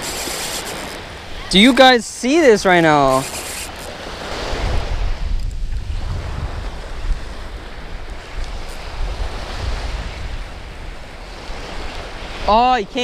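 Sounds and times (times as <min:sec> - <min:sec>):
surf washing up beach: 0:00.0 - 0:13.0
wind buffeting microphone: 0:03.0 - 0:13.0.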